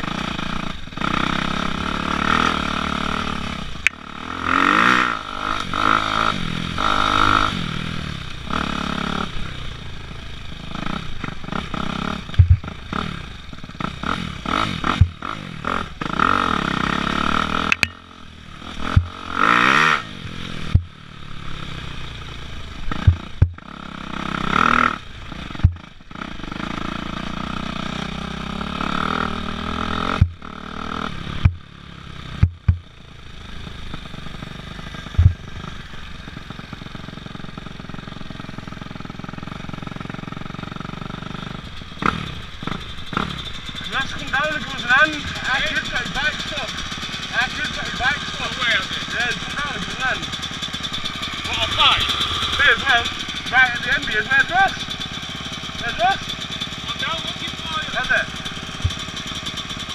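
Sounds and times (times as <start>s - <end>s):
dirt bike engine revving: 0.0s - 59.9s
sharp knocks: 12.4s - 12.7s, 17.6s - 18.0s, 23.0s - 23.6s, 25.6s - 25.8s, 32.4s - 32.9s, 35.2s - 35.4s.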